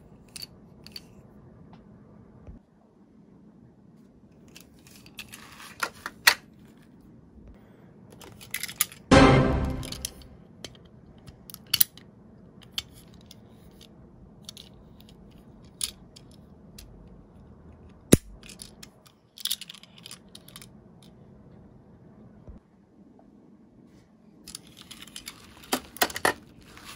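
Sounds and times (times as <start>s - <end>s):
toy being handled clicks: 18.4s - 20.7s.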